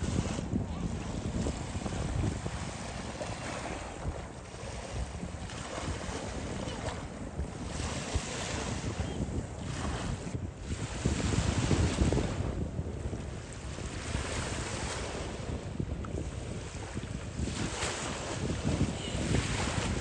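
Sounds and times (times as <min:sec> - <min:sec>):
lake waves washing in: 0:00.0 - 0:20.0
wind buffeting microphone: 0:00.0 - 0:20.0.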